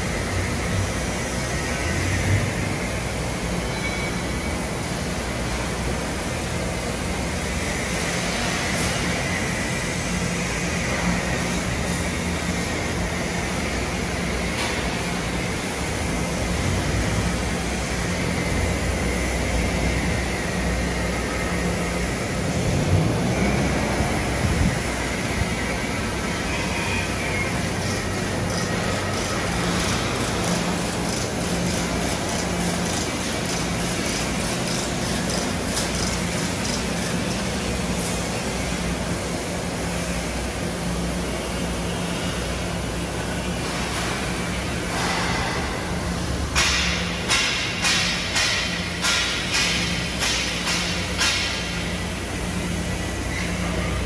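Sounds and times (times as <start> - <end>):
vehicle engine hum: 4.5 - 46.6
engine rising in pitch: 22.4 - 27.6.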